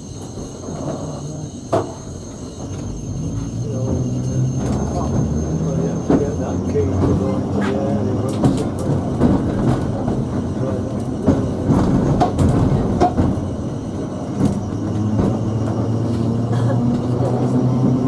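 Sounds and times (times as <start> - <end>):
tram body rattling: 0.0 - 18.0.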